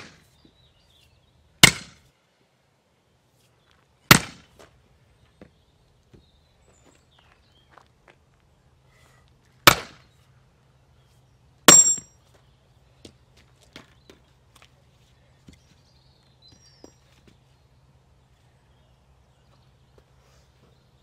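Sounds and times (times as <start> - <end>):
axe striking firewood: 1.6 - 2.0, 4.1 - 4.5, 9.6 - 10.0, 11.7 - 12.1.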